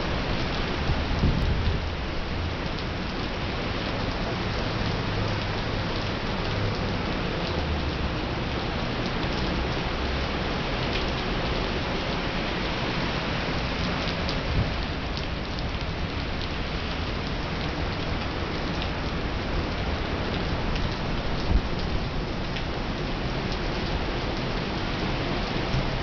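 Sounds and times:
heavy rain on street: 0.0 - 26.0.

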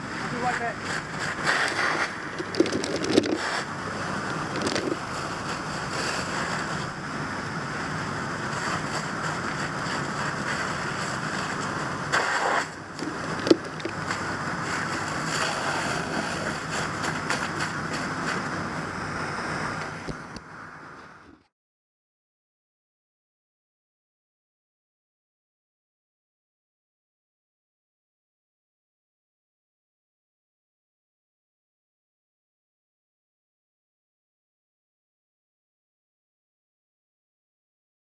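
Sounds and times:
fire hose spraying water: 0.0 - 20.9.

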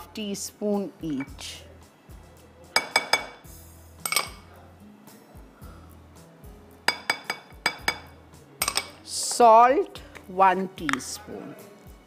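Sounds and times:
soft background music: 0.0 - 12.0
spoon clinking glass bowls: 2.8 - 4.5, 6.9 - 9.0.

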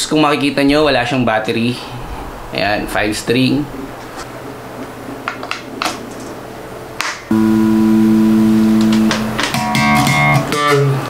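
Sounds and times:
amplifier hum: 6.4 - 10.6
plucked bass notes: 7.3 - 10.6.

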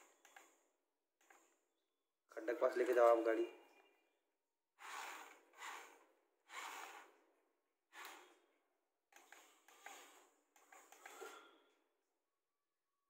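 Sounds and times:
toy motors whirring: 4.8 - 7.2, 7.9 - 8.4, 9.2 - 11.2.

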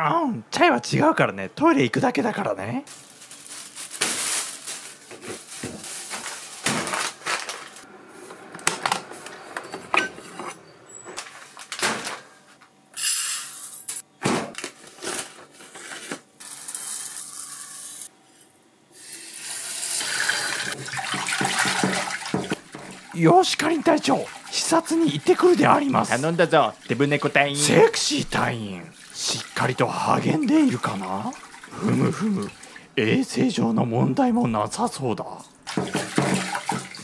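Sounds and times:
tap water running into pot: 19.1 - 27.5, 35.6 - 37.0.

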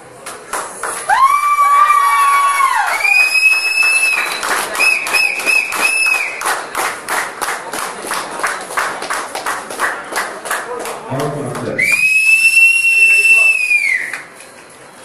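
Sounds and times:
audience clapping: 0.2 - 12.8, 13.6 - 14.5
loud whistles: 2.3 - 6.4, 11.8 - 14.3.

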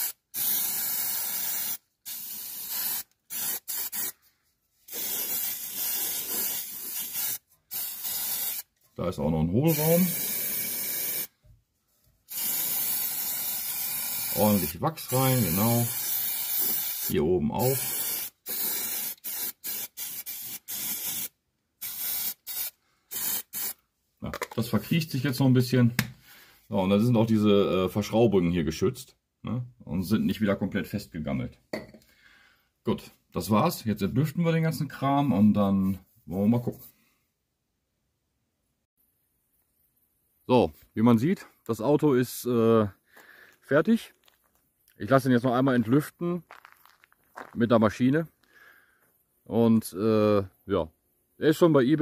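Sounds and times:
aerosol can spraying: 0.0 - 4.2, 4.9 - 8.7, 9.7 - 11.3, 12.3 - 23.8.

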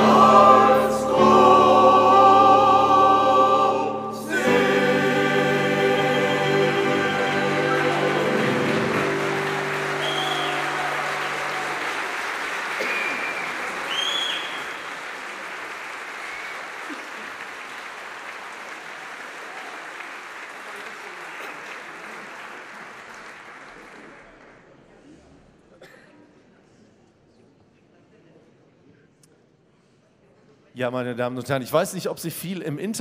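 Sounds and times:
men's choir singing: 0.0 - 12.1
audience applauding: 4.3 - 24.7.

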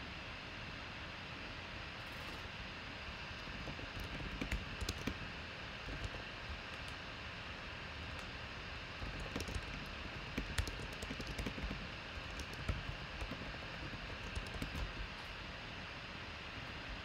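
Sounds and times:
steady background hiss: 0.0 - 17.0
typing on keyboard: 3.4 - 7.0, 9.0 - 15.3.

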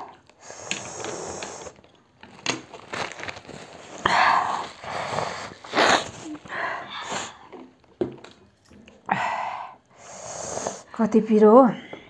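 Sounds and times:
nose blowing into tissue: 0.4 - 1.8, 4.3 - 7.4, 10.0 - 10.9.

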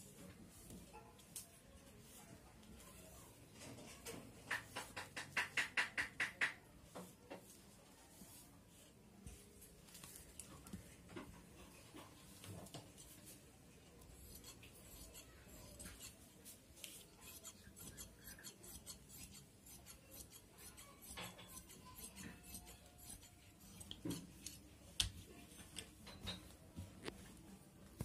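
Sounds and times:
cloth rasping: 14.0 - 16.2, 16.8 - 24.6.

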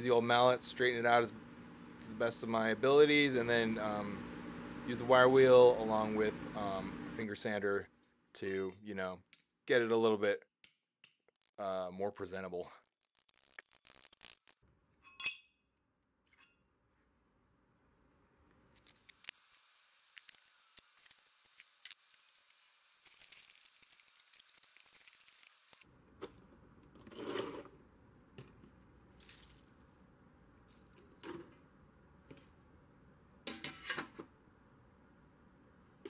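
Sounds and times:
small metal parts clinking: 21.6 - 26.4.

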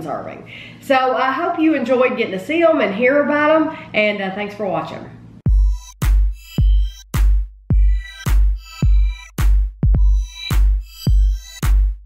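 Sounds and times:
kick drum beat: 5.4 - 12.0.

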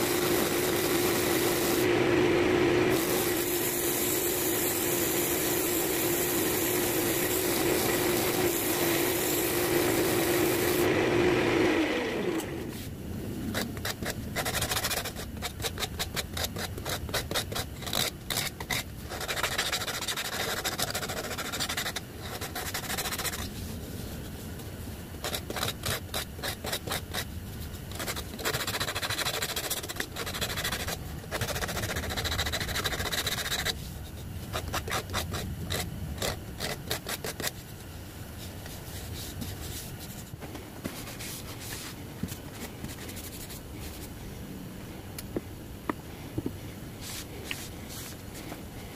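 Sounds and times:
sandpaper rubbing on wood: 0.0 - 1.9, 2.9 - 10.9, 13.5 - 23.5, 25.2 - 37.7
wood lathe running: 0.0 - 12.7
sanding pad on spinning wood: 0.0 - 23.7, 25.2 - 33.9.

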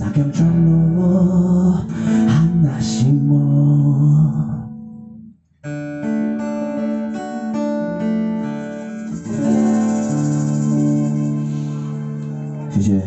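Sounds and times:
acoustic guitar strumming: 0.0 - 13.0
live band music: 8.6 - 12.6.

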